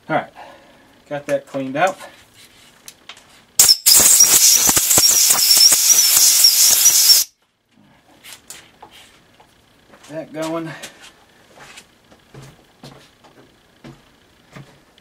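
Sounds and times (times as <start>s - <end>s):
compressed air blow gun hissing: 3.6s - 7.3s.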